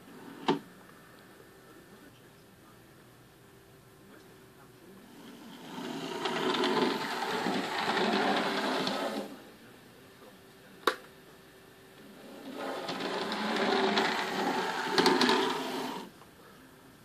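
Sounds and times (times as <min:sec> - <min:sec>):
model streetcar motor whir: 0:05.0 - 0:09.5, 0:12.0 - 0:16.1.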